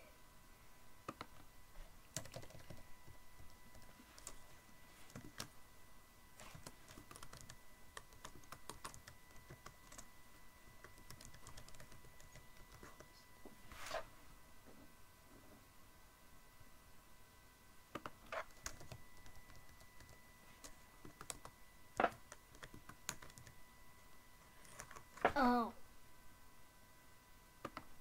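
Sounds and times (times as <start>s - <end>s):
keyboard typing: 2.1s - 5.5s, 6.4s - 10.1s, 10.8s - 13.1s, 18.0s - 23.6s, 24.6s - 25.2s.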